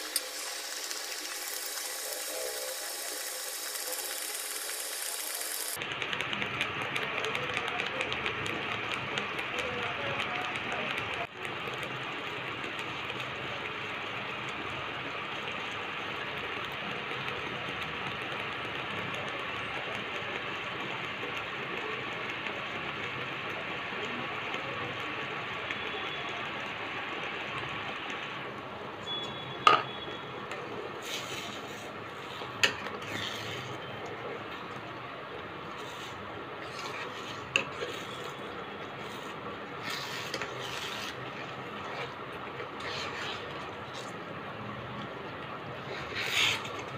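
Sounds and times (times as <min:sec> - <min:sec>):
lentils simmering with bubble pops: 0:00.0 - 0:28.7
thick food bubbling: 0:30.5 - 0:46.9
spatula scraping pan: 0:31.0 - 0:33.9, 0:35.8 - 0:44.1.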